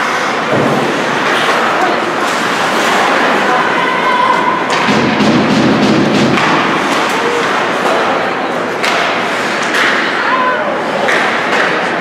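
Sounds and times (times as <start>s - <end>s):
arena noise: 0.0s - 12.0s
skates scraping ice: 0.0s - 12.0s
puck thudding against boards: 4.7s - 10.2s.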